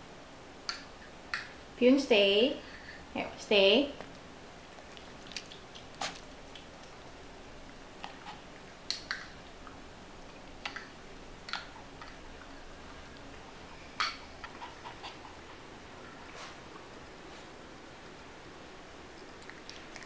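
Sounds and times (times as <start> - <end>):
dog smacking lips: 4.7 - 7.2.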